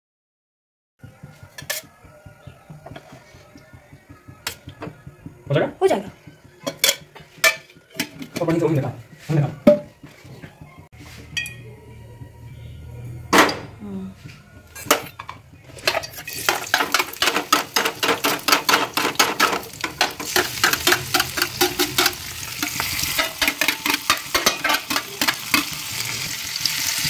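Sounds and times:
vegetables sizzling in oil: 15.8s - 27.0s.

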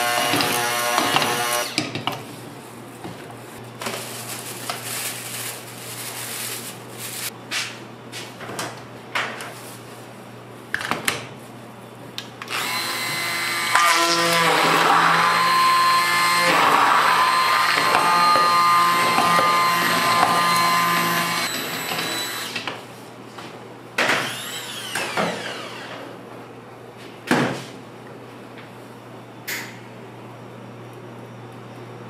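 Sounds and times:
hand blender motor whining: 0.0s - 1.8s, 12.5s - 22.6s.

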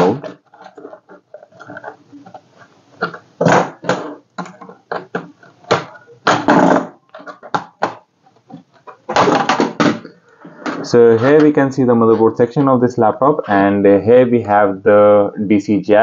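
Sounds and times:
plastic cover crackling: 0.0s - 10.1s.

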